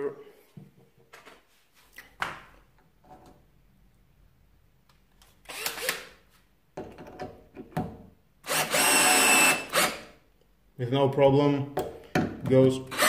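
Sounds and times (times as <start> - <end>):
cordless drill driving a screw: 5.4 - 6.1, 8.4 - 10.1
drill clicks: 5.4 - 6.1, 8.5 - 10.1.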